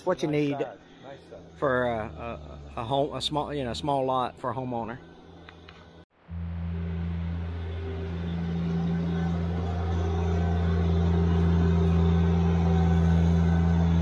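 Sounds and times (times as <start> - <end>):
tractor engine running: 6.3 - 14.0.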